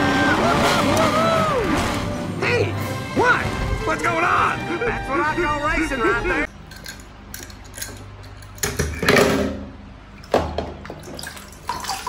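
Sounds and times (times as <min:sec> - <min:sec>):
water swishing: 0:00.0 - 0:02.4.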